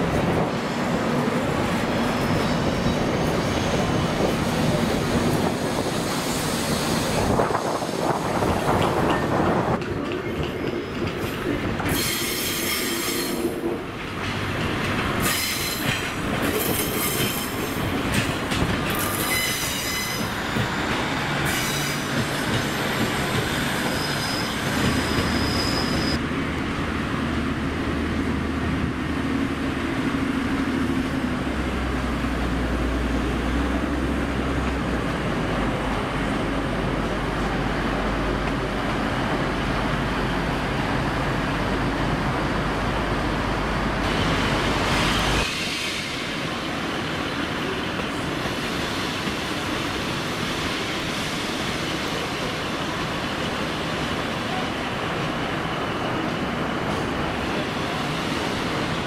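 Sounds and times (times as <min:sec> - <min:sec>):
train wheels rumbling on rails: 0:00.0 - 0:59.0
train wheels squealing: 0:11.9 - 0:13.5, 0:15.2 - 0:17.7, 0:18.9 - 0:20.6, 0:21.4 - 0:26.2.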